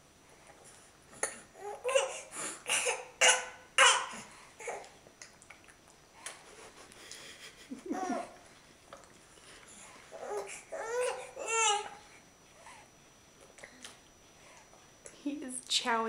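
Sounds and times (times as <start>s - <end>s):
baby babbling: 1.6s - 4.9s, 10.2s - 12.0s.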